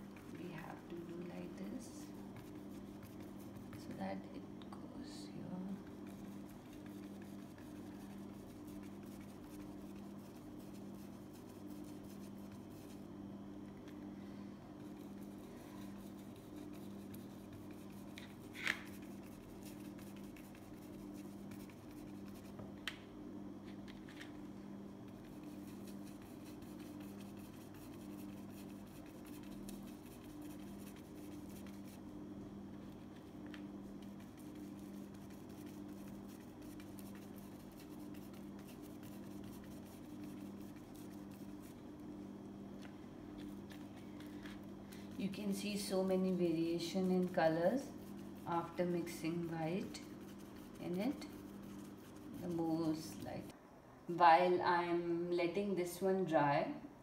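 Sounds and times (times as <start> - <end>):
paintbrush scratching on canvas: 0.0 - 4.0, 5.7 - 13.1, 14.8 - 22.6, 25.1 - 32.1, 32.8 - 41.9, 45.2 - 53.5
steady low hum: 0.0 - 57.0.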